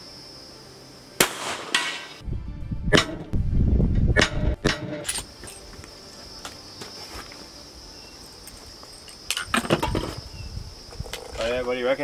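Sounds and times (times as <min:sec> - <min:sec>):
high insect buzz: 0:00.0 - 0:02.2, 0:05.0 - 0:12.0
rifle shot: 0:01.2 - 0:02.2.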